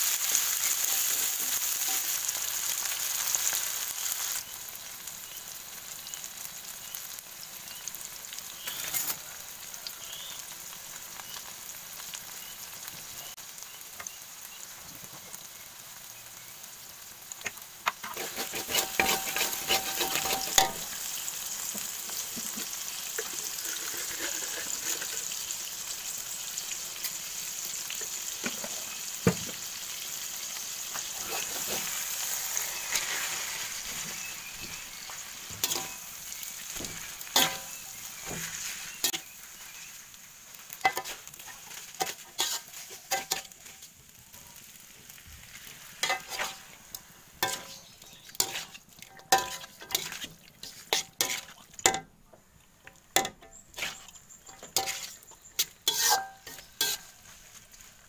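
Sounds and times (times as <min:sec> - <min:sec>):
food sizzling in hot oil: 0:00.0 - 0:58.0
metal spatula scraping a wok: 0:00.6 - 0:02.4, 0:08.6 - 0:09.2, 0:17.8 - 0:25.5, 0:30.9 - 0:40.0, 0:40.6 - 0:43.9, 0:45.6 - 0:52.0, 0:53.2 - 0:57.9.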